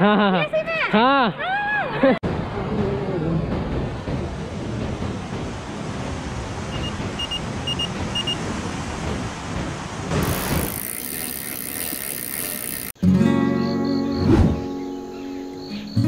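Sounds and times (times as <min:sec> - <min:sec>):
surf breaking on shore: 0:02.2 - 0:12.9.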